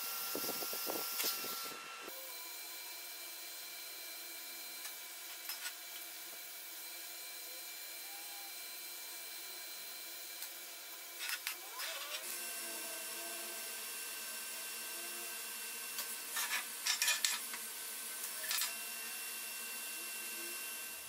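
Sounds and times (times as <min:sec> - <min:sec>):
welding arc hissing: 0:00.0 - 0:01.8, 0:15.5 - 0:21.0.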